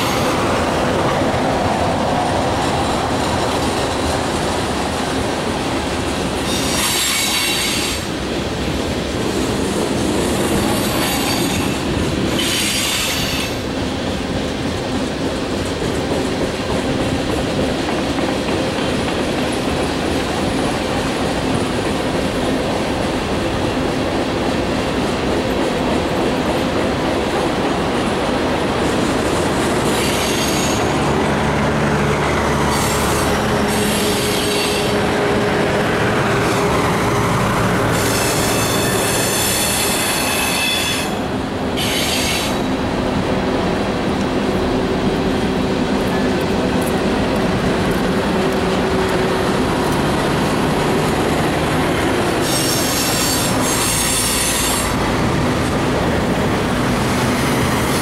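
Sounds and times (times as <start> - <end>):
freight train wheels rumbling: 0.0 - 58.0
steel wheel squeal: 32.7 - 35.0, 37.9 - 41.2, 41.8 - 42.7, 52.4 - 55.0.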